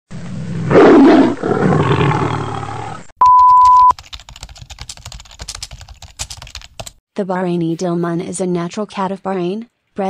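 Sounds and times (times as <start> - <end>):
high beep: 3.2 - 3.9.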